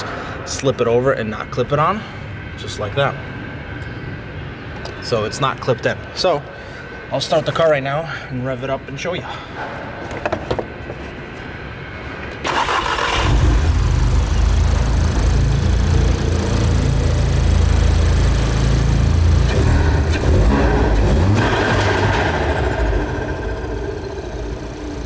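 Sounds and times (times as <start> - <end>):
car engine cranking and running: 12.4 - 25.0.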